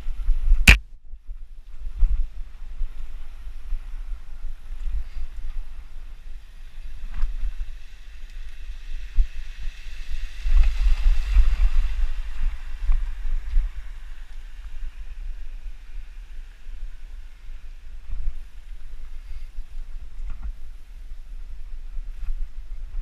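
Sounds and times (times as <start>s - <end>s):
wind rumble on microphone: 0.0s - 23.0s.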